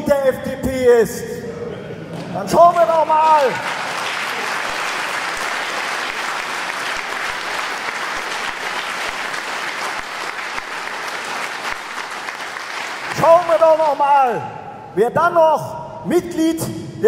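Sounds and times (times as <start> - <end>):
audience applauding: 2.1 - 13.8.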